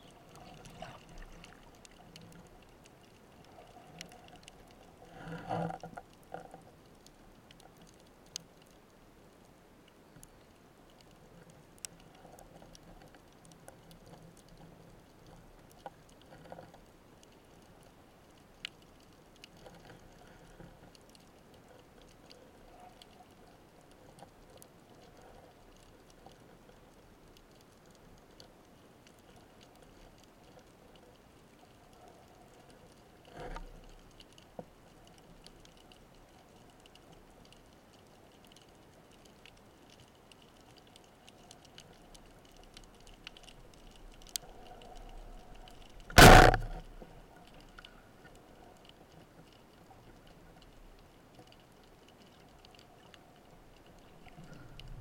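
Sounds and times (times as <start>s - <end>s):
low underwater hiss: 0.0s - 55.0s
sharp clicks: 45.8s - 46.8s
burst of noise: 46.1s - 46.8s.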